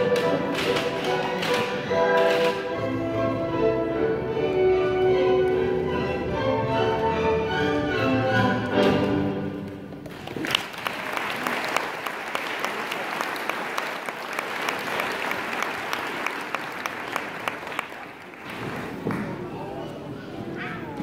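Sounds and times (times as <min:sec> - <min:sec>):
orchestral music: 0:00.0 - 0:10.0
audience applause: 0:10.0 - 0:19.4.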